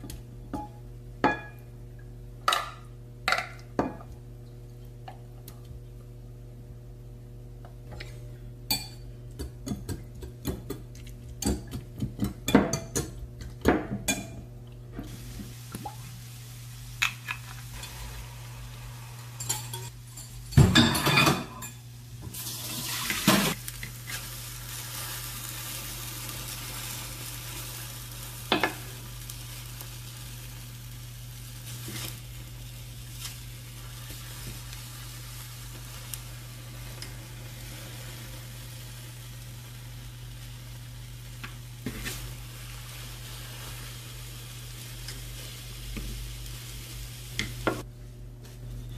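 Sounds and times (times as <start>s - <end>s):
low steady hum: 0.0s - 48.9s
egg mixture sizzling in pan: 15.0s - 20.7s, 22.1s - 47.9s.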